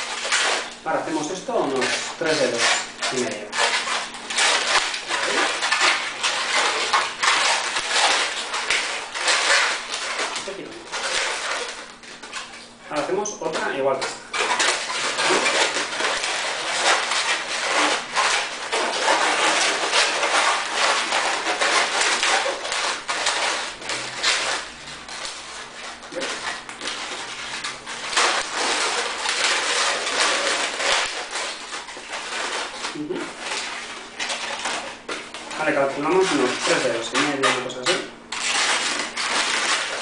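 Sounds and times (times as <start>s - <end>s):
balloon squeaking and rubbing: 14.2s - 34.0s.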